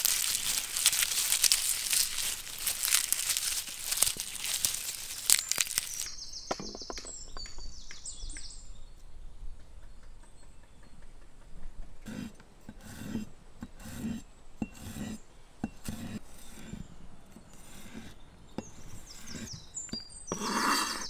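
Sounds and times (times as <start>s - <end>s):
birds chirping: 0.0s - 12.1s, 16.3s - 21.0s.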